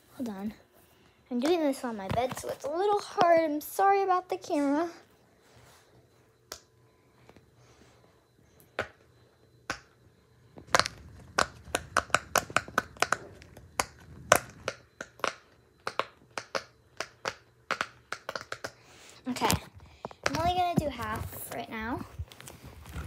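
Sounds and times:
fidget toy bubbles popping: 10.7s - 18.8s.

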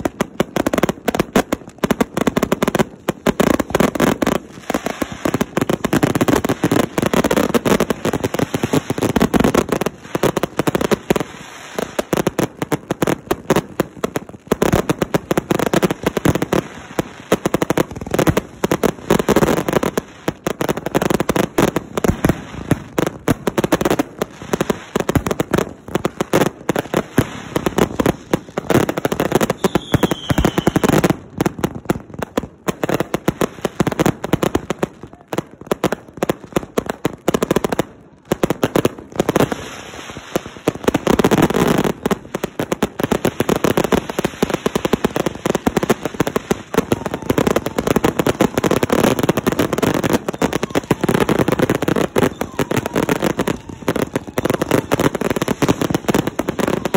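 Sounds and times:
falling whistle: 29.6s - 30.8s, 52.2s - 55.0s.

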